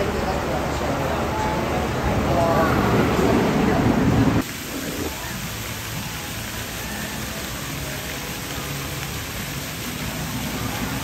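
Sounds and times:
falling water hiss: 0.0 - 11.0
voice-like sound: 1.2 - 5.5.

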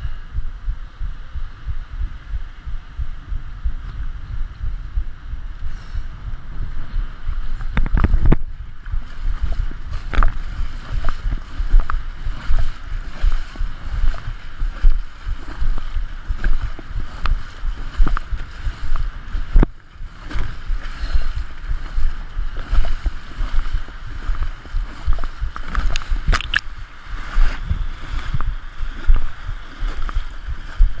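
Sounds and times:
wind buffeting microphone: 0.0 - 31.0
water rushing and splashing: 7.1 - 31.0.

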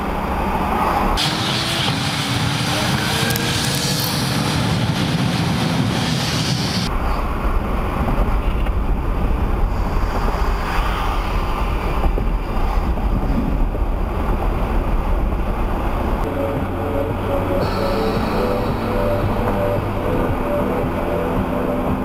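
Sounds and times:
road rumble inside car: 6.8 - 22.0.

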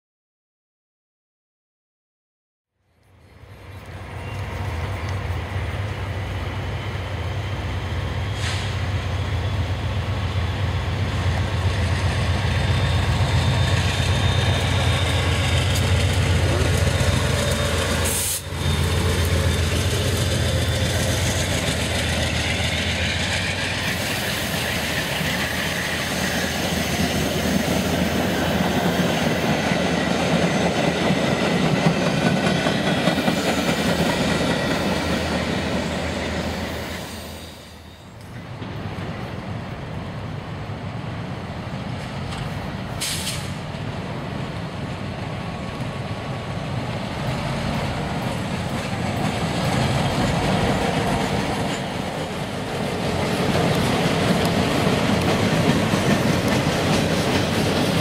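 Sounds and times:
diesel locomotive engine rumble: 2.8 - 58.0
train wheels clattering on rails: 11.2 - 39.4, 41.8 - 58.0.

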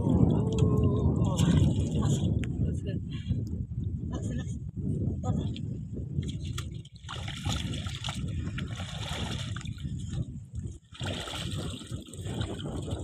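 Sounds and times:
water splashing and trickling: 0.0 - 2.4, 6.2 - 13.0.

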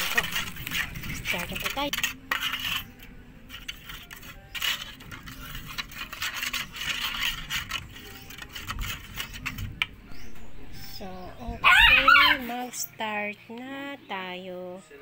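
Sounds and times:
spoon beating eggs in metal bowl: 0.0 - 9.7.

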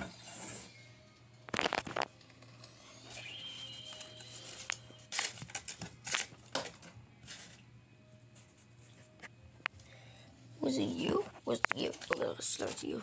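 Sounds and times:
paper rustling and crinkling: 1.5 - 2.2, 3.6 - 7.6, 11.4 - 13.0.

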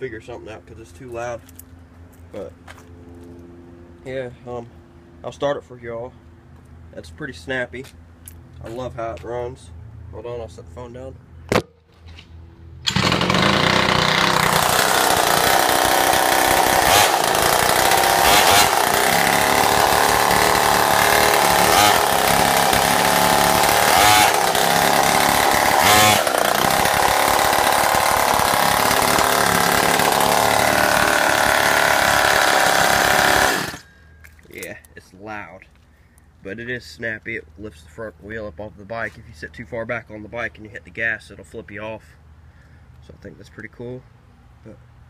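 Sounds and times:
two-stroke engine revving: 12.8 - 33.9.

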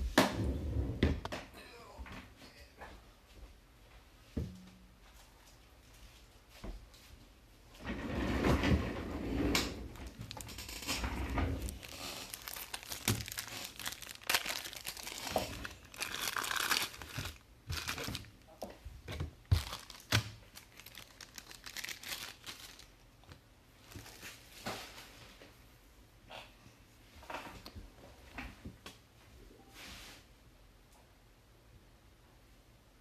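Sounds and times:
plastic wrapping crinkling: 10.0 - 18.6, 19.4 - 23.0.

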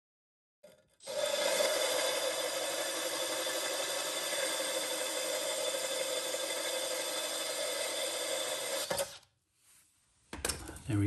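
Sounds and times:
hole saw grinding concrete: 0.6 - 9.2
power drill motor whir: 1.0 - 9.2.

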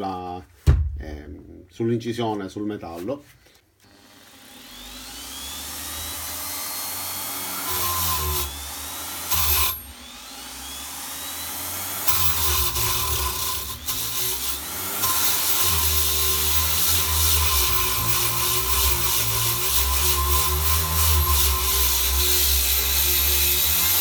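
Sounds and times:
die grinder motor whine: 3.8 - 24.0.

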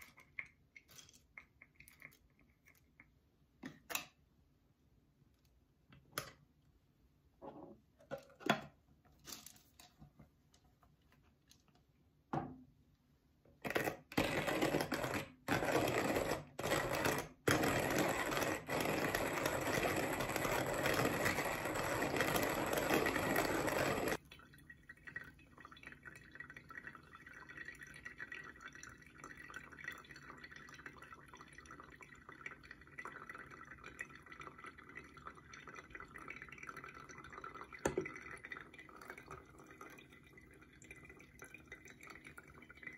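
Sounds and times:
hand-cranked coffee grinder grinding: 13.7 - 24.2
hot water pouring onto coffee: 15.9 - 42.9.

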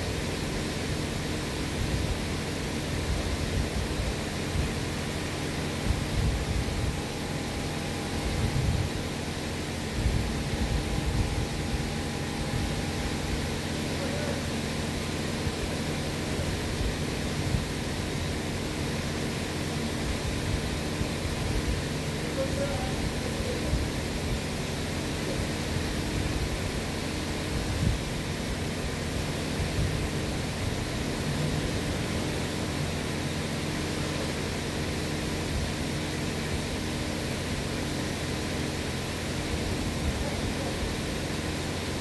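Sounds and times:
low hum: 3.5 - 19.5.

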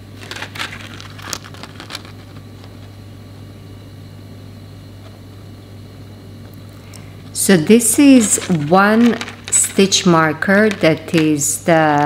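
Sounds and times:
low room hum: 0.0 - 12.0
paper card clicks and rustles: 0.2 - 2.8, 8.1 - 12.0.

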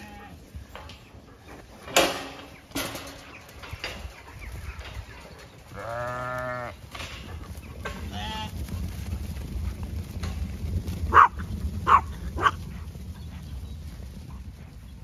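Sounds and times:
sheep bleating: 0.0 - 0.5, 5.7 - 6.8, 8.1 - 8.6
metal gate clanking: 1.8 - 8.0.

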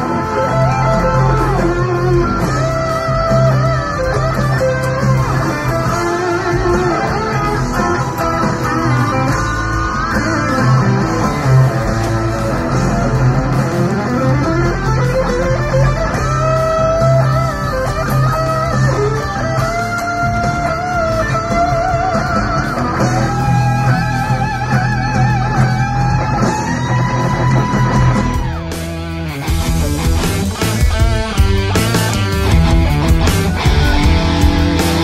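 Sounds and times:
electric guitar rock lead: 0.0 - 35.0
steady low bass: 29.0 - 35.0.

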